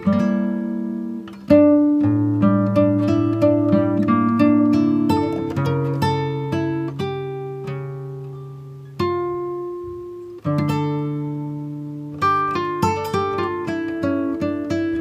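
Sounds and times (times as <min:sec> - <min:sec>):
acoustic guitar chords: 0:00.0 - 0:15.0.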